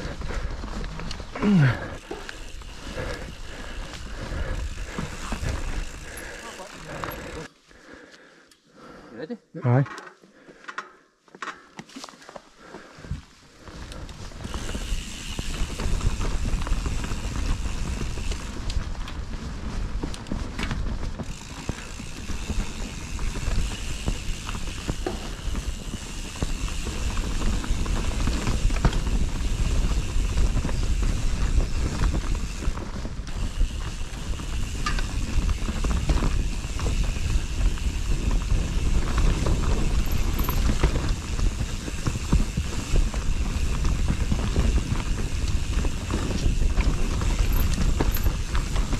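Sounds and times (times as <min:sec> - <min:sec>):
bike frame rattling: 0:00.0 - 0:07.5, 0:13.6 - 0:48.9
bike tyres on dirt: 0:00.0 - 0:09.0, 0:10.1 - 0:48.9
wind rumbling on microphone: 0:13.9 - 0:48.9.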